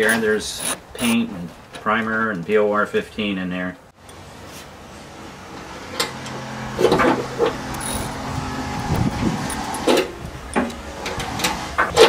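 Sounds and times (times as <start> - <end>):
steady mechanical hum: 0.0 - 1.8, 3.8 - 12.0
metallic clicks and knocks: 8.8 - 11.2.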